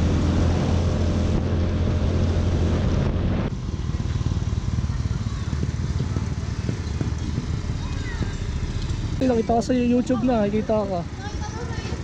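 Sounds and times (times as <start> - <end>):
wind and road noise: 0.0 - 12.0
scooter engine running: 3.5 - 12.0.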